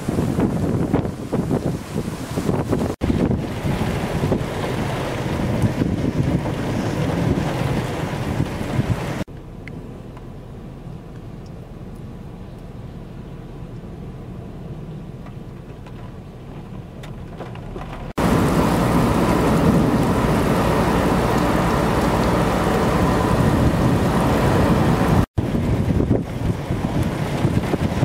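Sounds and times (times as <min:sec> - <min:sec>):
heavy rain downpour: 0:00.0 - 0:09.3, 0:17.8 - 0:28.0
thunder rumbling: 0:00.0 - 0:09.3, 0:17.8 - 0:28.0
high wind: 0:00.0 - 0:28.0.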